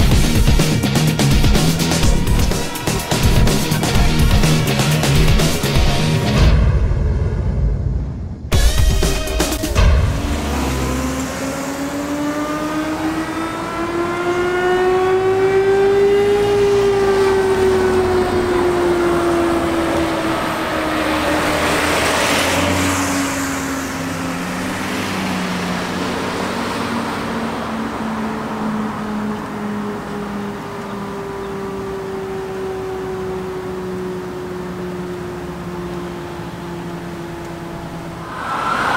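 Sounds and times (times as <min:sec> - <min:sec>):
car passing: 0:09.7 - 0:38.9
another siren tone: 0:10.4 - 0:38.9.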